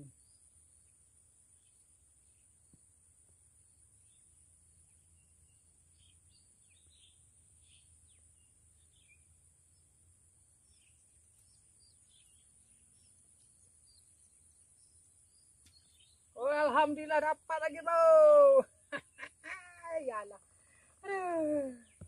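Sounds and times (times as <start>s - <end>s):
bird chirps: 3.7s - 9.9s, 10.6s - 16.8s.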